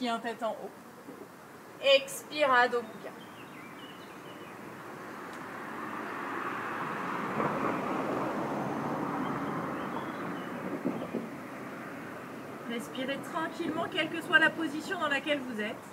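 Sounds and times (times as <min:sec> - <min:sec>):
vehicle passing by: 0:03.8 - 0:14.7.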